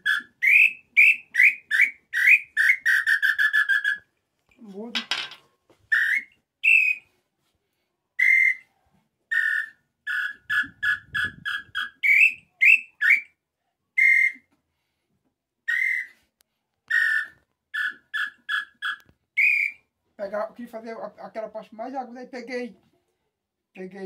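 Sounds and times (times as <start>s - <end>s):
bird call whistle notes: 0.0s - 4.0s, 5.9s - 7.0s, 8.2s - 8.7s, 9.3s - 13.3s, 14.0s - 14.5s, 15.7s - 16.2s, 16.9s - 19.8s.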